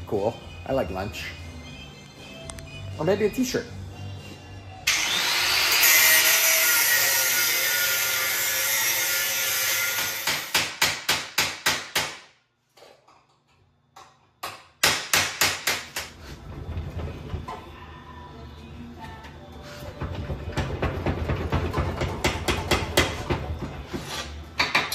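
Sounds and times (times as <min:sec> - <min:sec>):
electric grinder cutting steel: 0:04.9 - 0:10.5.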